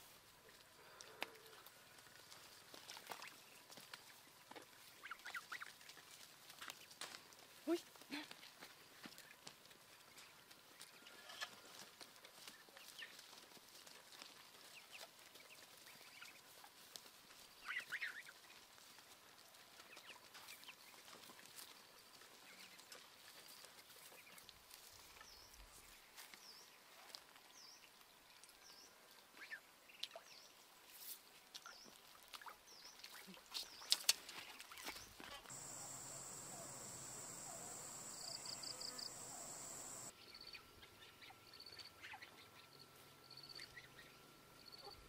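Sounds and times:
bird chirps: 0:35.5 - 0:40.1.

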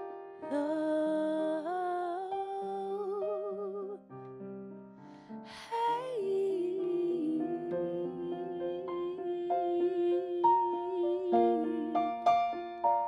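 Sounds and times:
woman singing soulful ballad: 0:00.5 - 0:04.0, 0:05.5 - 0:12.2.

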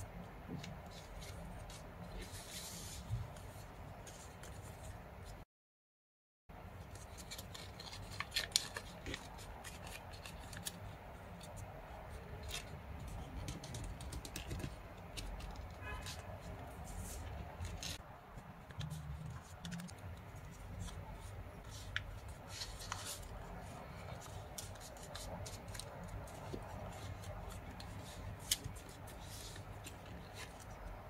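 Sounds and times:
paper crinkling and rustling: 0:06.8 - 0:31.0.

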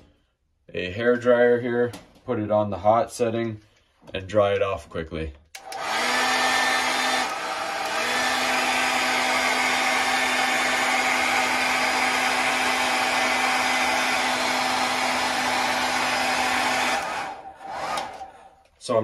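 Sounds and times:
hair dryer running: 0:05.6 - 0:18.7.

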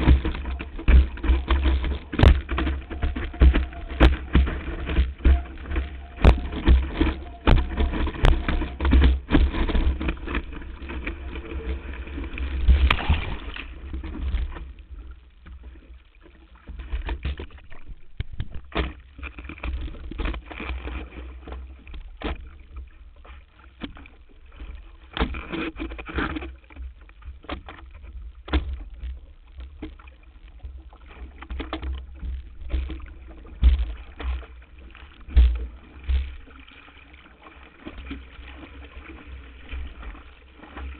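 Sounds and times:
water rushing and spraying: 0:00.0 - 0:14.6
wind buffeting camera: 0:00.0 - 0:14.8
water slapping hull: 0:00.0 - 0:40.9.

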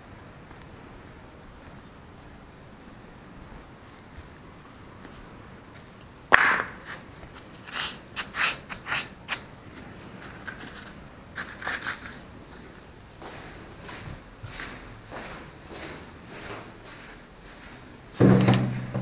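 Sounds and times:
sandal footsteps: 0:00.4 - 0:19.0
sandals slapping on tiles: 0:06.3 - 0:09.5.

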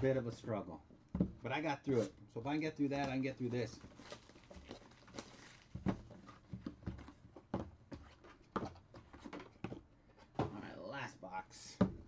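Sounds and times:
cardboard boxes knocking on table: 0:01.2 - 0:01.4, 0:05.8 - 0:09.8.

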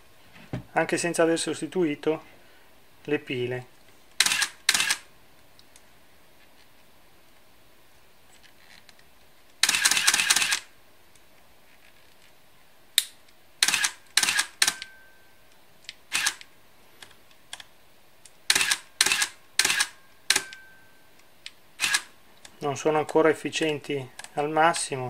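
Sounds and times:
camera motor advancing film: 0:04.2 - 0:05.0, 0:09.6 - 0:10.7, 0:13.6 - 0:14.9, 0:16.1 - 0:16.5, 0:18.5 - 0:20.6, 0:21.8 - 0:22.1
camera shutter clacks: 0:04.2 - 0:05.1, 0:09.6 - 0:10.7, 0:13.6 - 0:14.9, 0:16.1 - 0:16.5, 0:18.5 - 0:20.6, 0:21.8 - 0:22.1.

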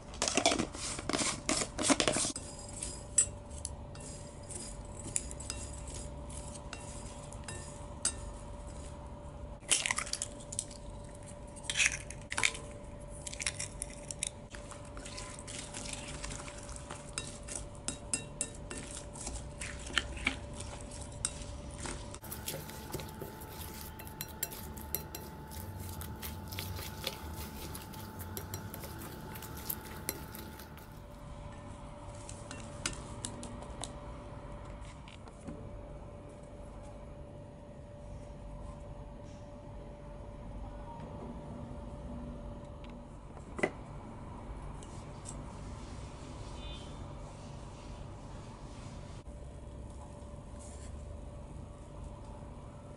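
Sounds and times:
utensil clinking in glass bowl: 0:13.3 - 0:31.2.

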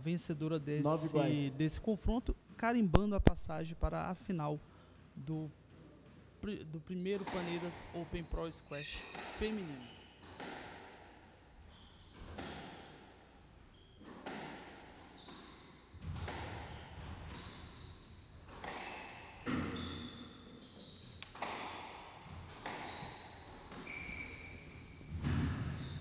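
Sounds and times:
shoes squeaking on wooden floor: 0:13.7 - 0:18.2, 0:18.8 - 0:21.5, 0:22.2 - 0:26.0
squash ball cracks: 0:21.2 - 0:22.9.

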